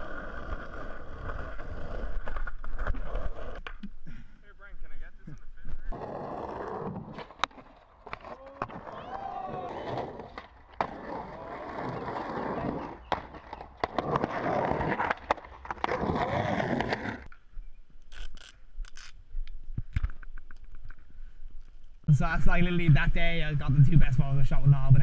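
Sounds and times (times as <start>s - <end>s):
skateboard wheels rolling on concrete: 0.0s - 4.0s, 4.6s - 25.0s
skateboard clacking on concrete: 7.0s - 8.9s, 9.5s - 17.3s.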